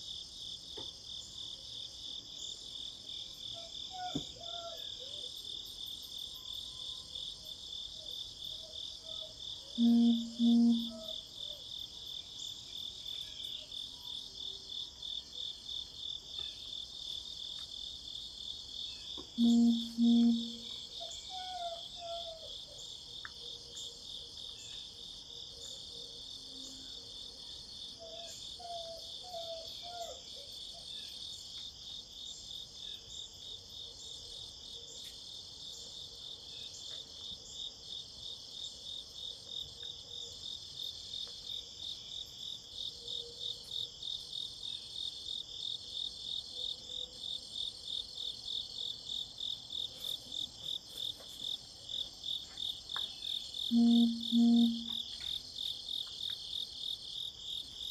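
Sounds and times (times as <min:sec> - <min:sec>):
insects trilling: 0:00.8 - 0:57.9
faint bird chirps: 0:09.1 - 0:11.2, 0:19.0 - 0:22.9, 0:53.7 - 0:55.0
low two-note hum: 0:19.4 - 0:20.6, 0:53.7 - 0:54.9.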